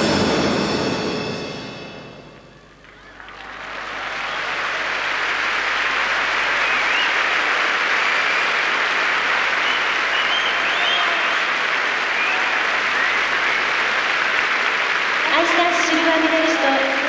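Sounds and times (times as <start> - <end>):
crowd applauding: 2.7 - 17.0
short whistles: 6.6 - 7.3, 9.6 - 11.5, 12.1 - 13.8.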